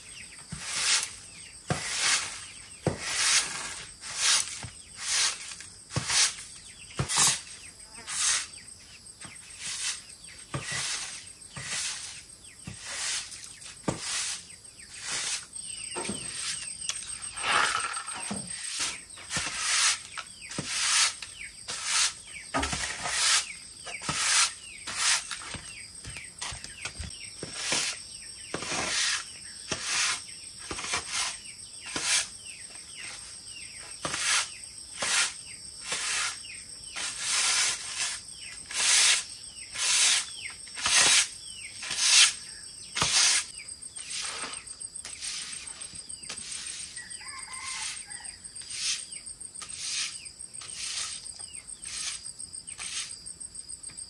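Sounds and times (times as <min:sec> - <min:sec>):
hand tool swishing strokes: 0:00.5 - 0:08.6, 0:09.5 - 0:15.5, 0:16.2 - 0:25.8, 0:26.4 - 0:28.0, 0:34.0 - 0:42.4, 0:43.0 - 0:47.0, 0:48.6 - 0:53.2.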